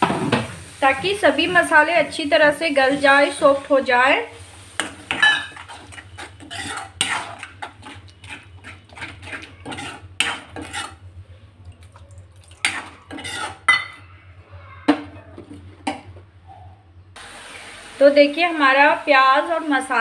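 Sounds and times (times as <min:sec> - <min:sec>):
metal spoon scraping a pan: 0:04.8 - 0:11.1, 0:12.6 - 0:14.0.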